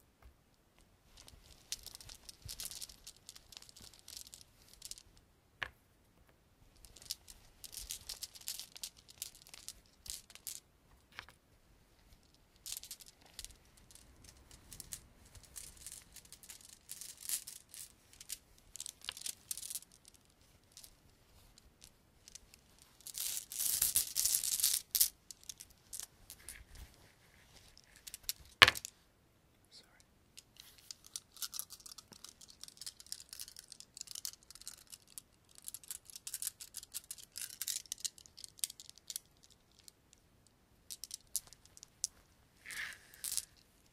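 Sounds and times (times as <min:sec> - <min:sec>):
rustling: 0:00.8 - 0:05.2, 0:06.6 - 0:29.0, 0:30.4 - 0:40.0, 0:40.8 - 0:43.9
small objects scratching and rattling: 0:01.1 - 0:05.2, 0:06.8 - 0:11.4, 0:12.1 - 0:28.9, 0:30.4 - 0:40.0, 0:40.9 - 0:43.9.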